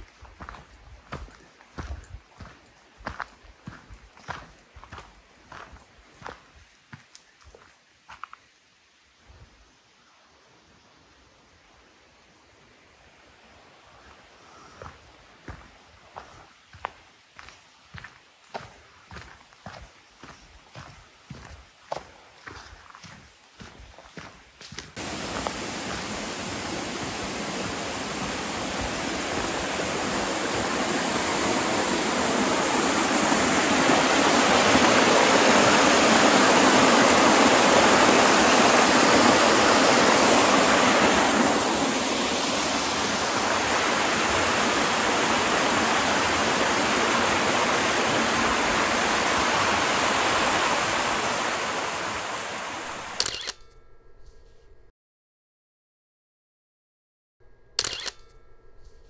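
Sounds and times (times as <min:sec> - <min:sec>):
stream rushing over boulders: 0:15.0 - 0:53.2.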